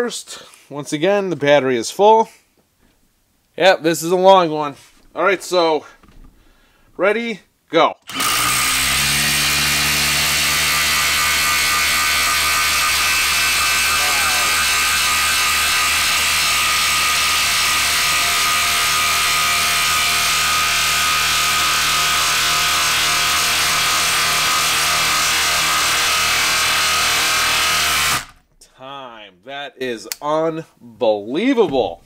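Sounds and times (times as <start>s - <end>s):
impact driver hammering: 8.1s - 28.4s.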